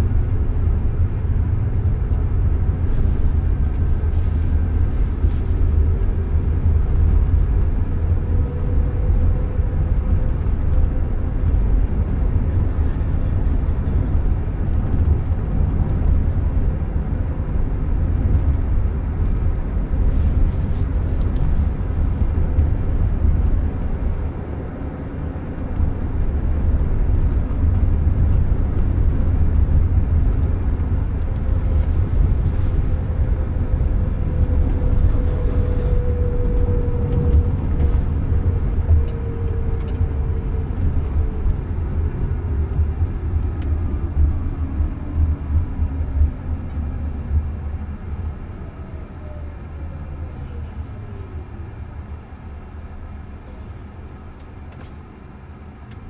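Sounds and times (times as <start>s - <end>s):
road and tyre rumble: 0.0s - 56.0s
faint whine: 25.7s - 54.5s.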